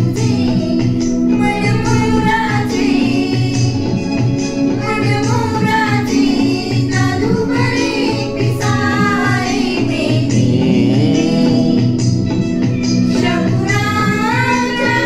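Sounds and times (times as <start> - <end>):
women singing: 0.0 - 12.3, 13.0 - 15.0
low steady pulse: 9.9 - 12.8.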